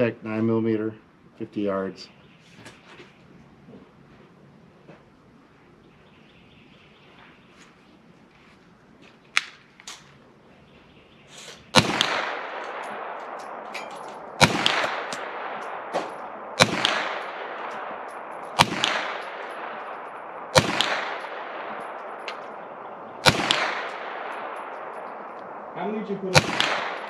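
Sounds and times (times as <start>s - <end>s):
carbine gunshots with echo: 11.6s - 27.0s.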